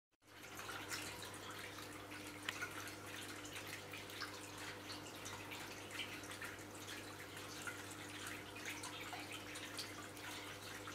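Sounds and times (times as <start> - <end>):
fountain water trickling: 0.2 - 10.9
water drips and splashes: 0.2 - 10.9.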